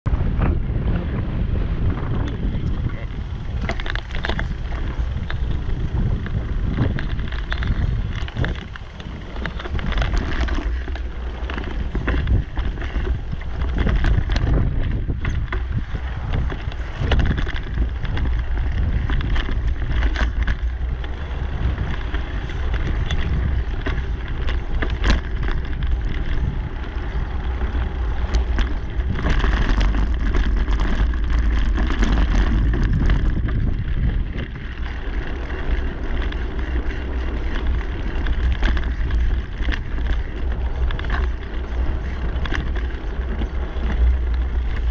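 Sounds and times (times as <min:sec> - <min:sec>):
wind buffeting microphone: 0:00.0 - 0:44.9
bike clicking and rattling: 0:00.1 - 0:44.9.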